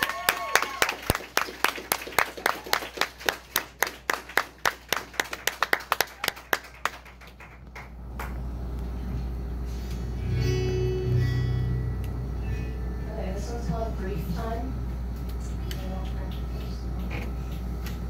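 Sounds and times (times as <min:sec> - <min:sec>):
hand clapping: 0:00.0 - 0:08.4
steady low rumble: 0:06.7 - 0:18.0
acoustic guitar strumming: 0:10.2 - 0:13.6.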